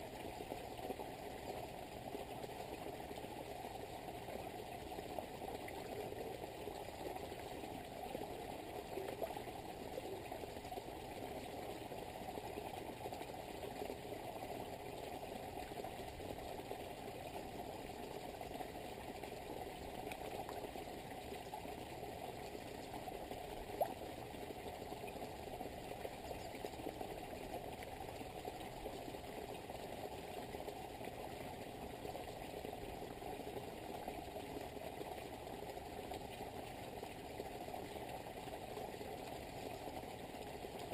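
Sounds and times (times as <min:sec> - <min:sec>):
small waterfall splashing into pond: 0:00.0 - 0:40.9.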